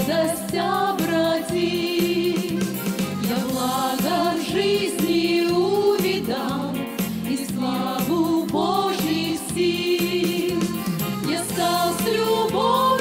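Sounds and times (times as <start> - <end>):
women's ensemble singing: 0.0 - 13.0
instrumental accompaniment with low beat: 2.0 - 4.3, 9.6 - 12.2.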